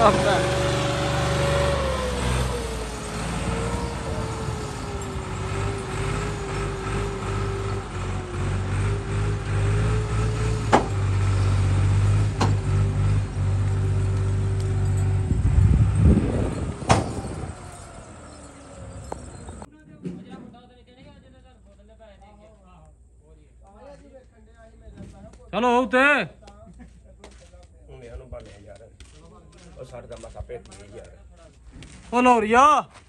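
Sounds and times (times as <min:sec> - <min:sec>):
tractor engine labouring: 0:00.0 - 0:19.7
sharp knocks: 0:10.7 - 0:11.0.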